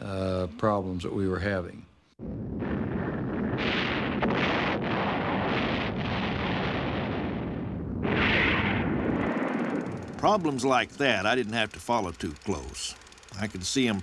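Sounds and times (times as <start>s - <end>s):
rocket explosions rumbling: 2.2s - 10.3s.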